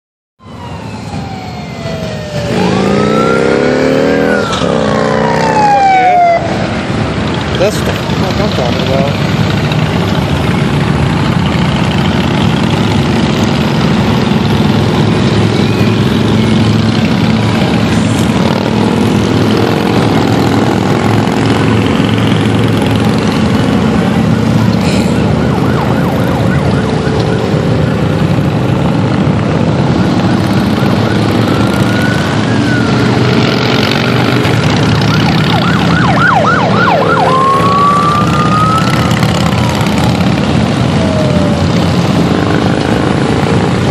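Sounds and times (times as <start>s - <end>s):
siren whooping: 0.4s - 7.0s, 21.9s - 43.9s
motorcycles rumbling past: 0.6s - 43.9s.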